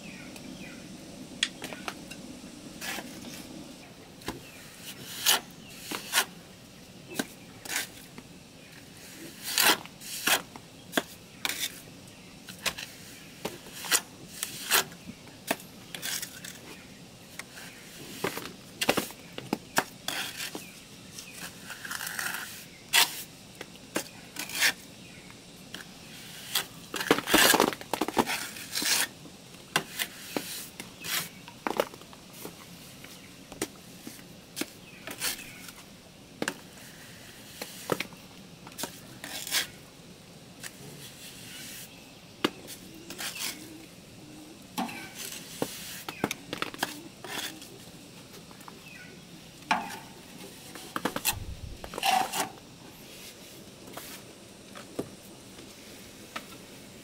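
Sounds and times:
trowel scraping mortar: 4.7s - 6.4s, 9.3s - 11.8s, 13.6s - 15.0s, 15.9s - 16.6s, 19.8s - 20.6s, 21.4s - 23.3s, 24.4s - 24.8s, 28.2s - 29.1s, 38.8s - 39.8s, 42.7s - 43.8s, 46.8s - 47.8s, 50.7s - 52.6s.

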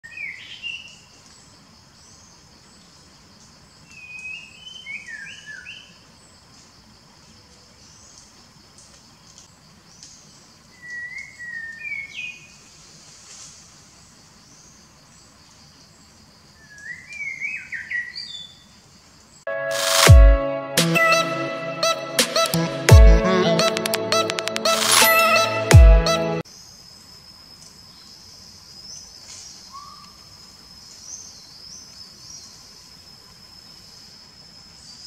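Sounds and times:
insects droning: 0.0s - 19.5s, 26.4s - 35.0s.

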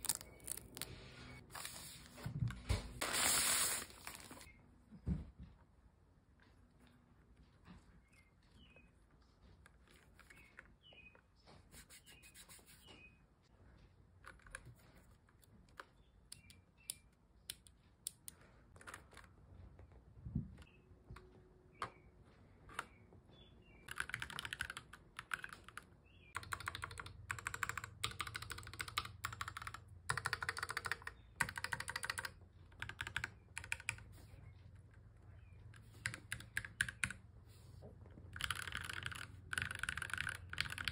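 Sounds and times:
keyboard being handled: 23.8s - 25.8s
mechanical keyboard typing: 23.9s - 34.1s, 35.9s - 37.2s, 38.3s - 40.9s.

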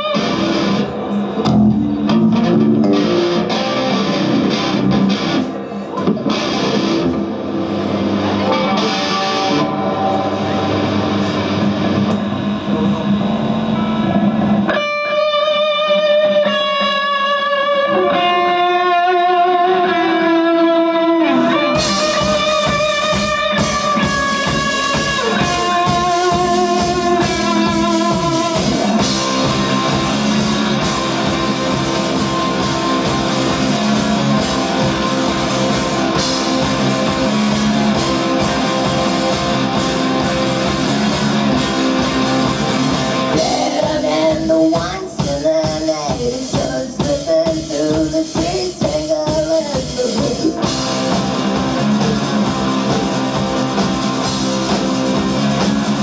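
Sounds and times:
drum kit: 0.0s - 17.1s, 21.2s - 56.0s
electric guitar and bass: 0.0s - 46.7s, 48.3s - 56.0s
person singing with vibrato: 43.2s - 50.8s.

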